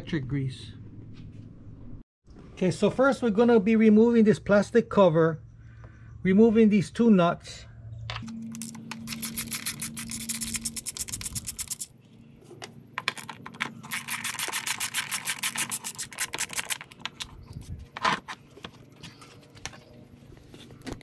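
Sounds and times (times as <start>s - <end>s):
ratchet clicking rapidly: 8.5s - 11.9s, 13.8s - 16.9s.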